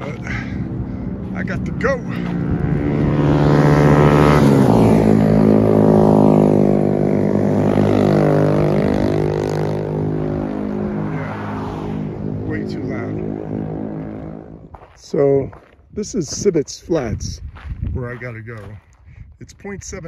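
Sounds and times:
motorcycles passing by: 0.0s - 15.3s
traffic: 0.0s - 17.2s.

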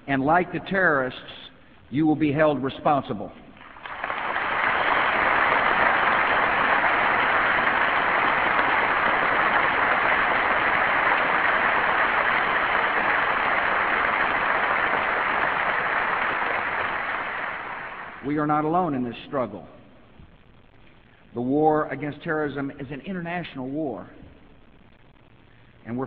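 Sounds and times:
audience applauding: 3.6s - 18.2s.

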